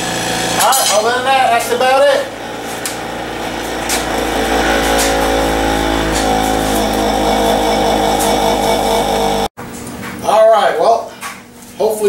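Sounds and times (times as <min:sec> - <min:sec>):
bench grinder motor hum: 0:00.0 - 0:09.5
blade grinding on wheel: 0:00.0 - 0:09.5.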